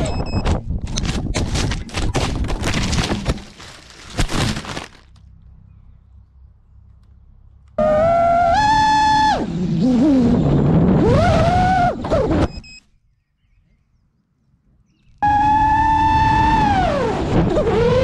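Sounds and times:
drone motors whining: 7.7s - 12.8s, 15.2s - 18.0s.

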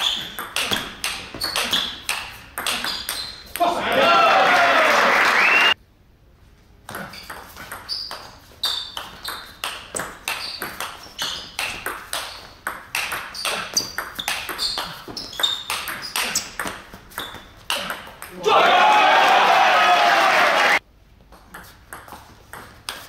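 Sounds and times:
table tennis ball hits: 0.0s - 4.0s, 6.9s - 18.5s.

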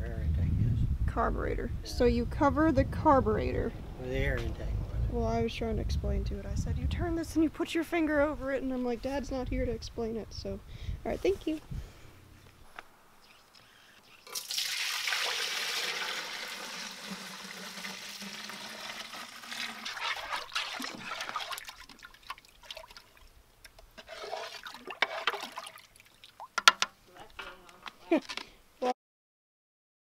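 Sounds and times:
liquid pouring into metal canister: 14.2s - 23.1s, 24.0s - 26.3s.

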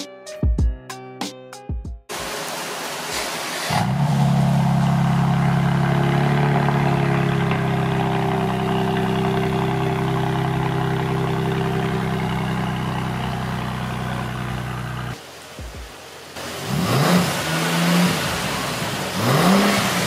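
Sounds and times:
car engine starting and idling: 3.1s - 15.2s.

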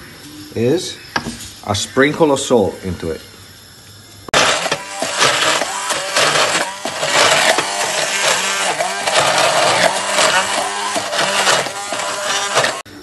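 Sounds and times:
stick blender motor running: 4.3s - 12.9s.

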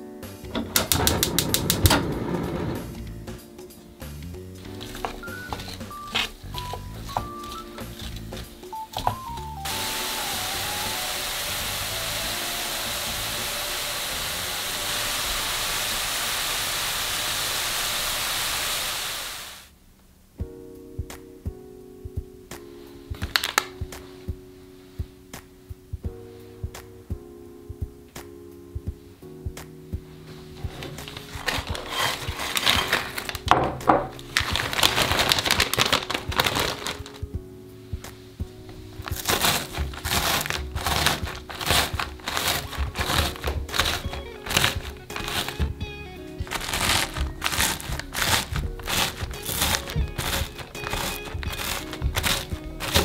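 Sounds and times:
soft background music: 0.0s - 16.8s, 20.3s - 53.0s
plastic bag crinkling: 4.7s - 9.1s, 23.2s - 23.8s, 30.6s - 37.3s, 38.7s - 45.8s, 46.4s - 53.0s
apple sizzling in a frying pan: 9.7s - 19.7s, 39.2s - 45.7s, 46.4s - 53.0s.

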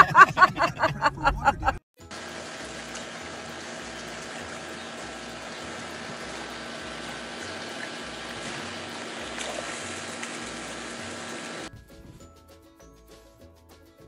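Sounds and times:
water trickling in pool: 2.1s - 11.7s.

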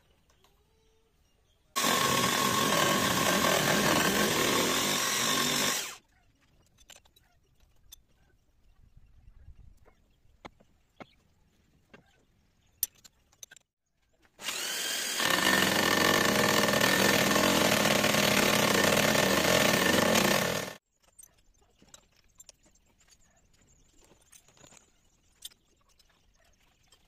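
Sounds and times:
cutting disc grinding steel: 1.8s - 6.0s, 14.4s - 20.8s.

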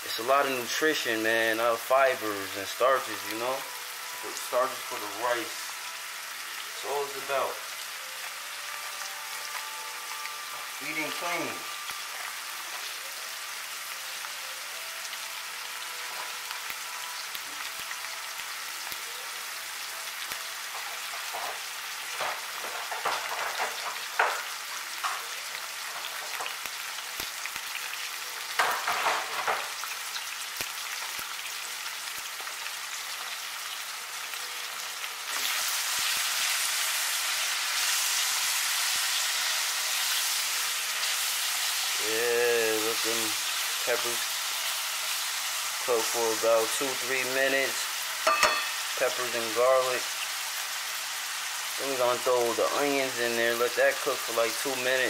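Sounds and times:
vegetables sizzling in oil: 0.0s - 55.0s
oil crackling: 35.3s - 50.2s.

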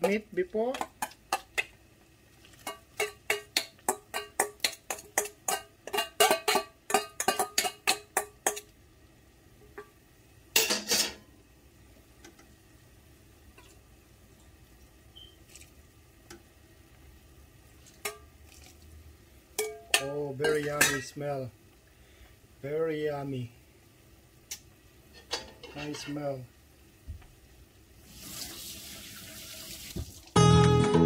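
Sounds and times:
metal spoon clinking on steel bowl: 2.6s - 8.7s, 19.6s - 21.1s.

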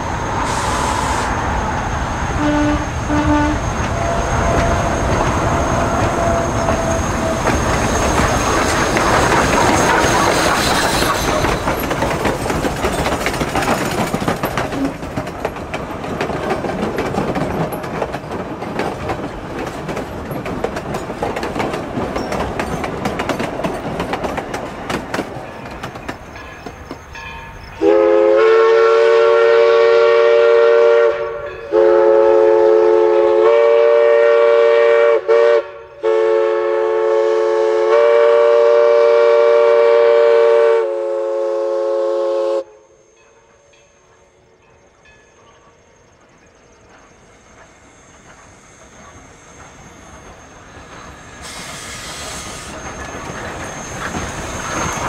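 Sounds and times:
steam locomotive rumble: 0.0s - 55.0s
steam whistle blasts: 0.4s - 1.4s, 2.4s - 7.4s, 27.8s - 43.0s, 51.4s - 55.0s
train wheel clatter: 2.9s - 28.0s, 43.8s - 55.0s.

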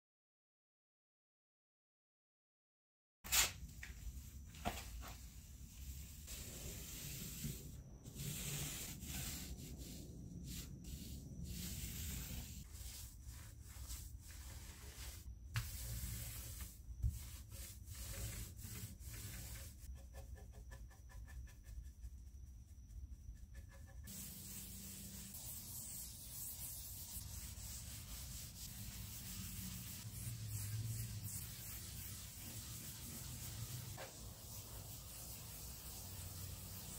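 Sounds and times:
paint roller rolling: 3.9s - 19.9s, 24.0s - 36.9s
paint brush strokes: 3.9s - 36.9s.

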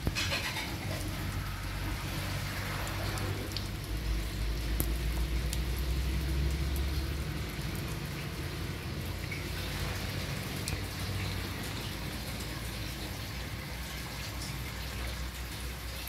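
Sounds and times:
rain pattering on floodwater: 0.0s - 16.0s
water drop ticks: 4.4s - 8.0s.

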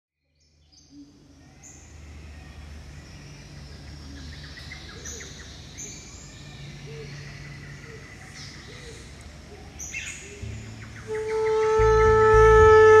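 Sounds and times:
birds chirping and whistling: 3.2s - 12.8s
low swooping bird note: 10.4s - 13.0s.

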